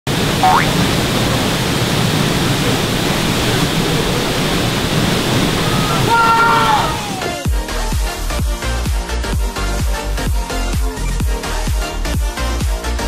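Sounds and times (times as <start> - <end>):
waterfall roaring: 0.1 - 7.5
rising chirp: 0.4 - 0.7.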